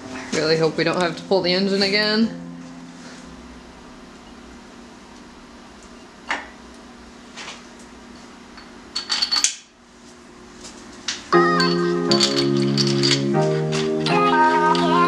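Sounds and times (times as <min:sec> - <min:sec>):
background music: 0:11.4 - 0:15.0.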